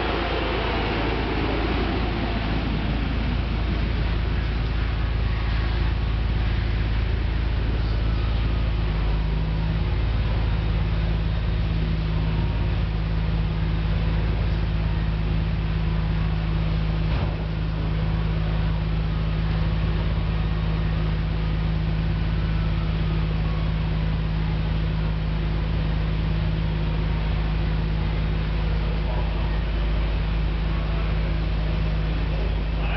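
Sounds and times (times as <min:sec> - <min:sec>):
low mechanical drone: 0:00.0 - 0:32.9.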